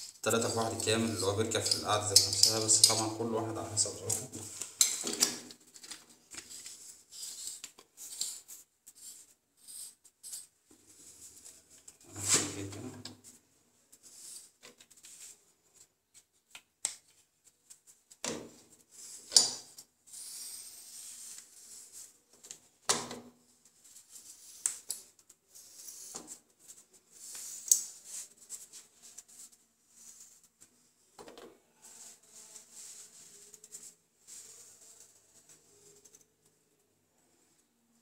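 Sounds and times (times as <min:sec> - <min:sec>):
metal plumbing fittings clicking: 0:00.3 - 0:03.2.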